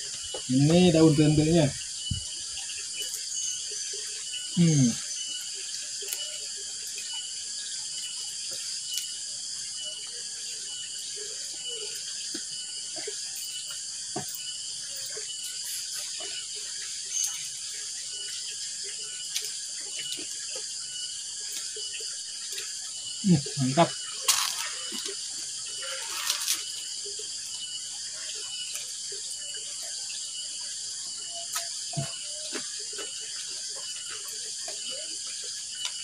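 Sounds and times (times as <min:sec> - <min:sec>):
crickets chirping: 0:00.0 - 0:36.0
hands eating off leaves: 0:24.2 - 0:25.2, 0:25.8 - 0:26.8.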